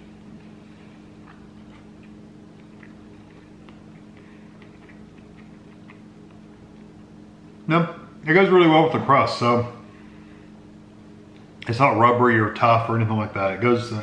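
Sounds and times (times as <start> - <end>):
man chewing food: 0.0 - 7.3
steady low hum: 0.0 - 14.0.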